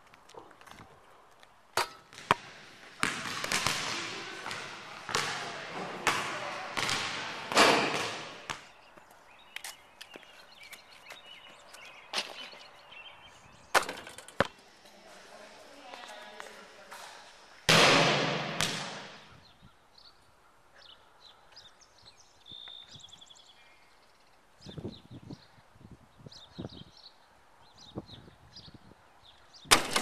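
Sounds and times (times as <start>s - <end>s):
basketball bouncing: 1.8s - 8.7s, 17.7s - 19.3s.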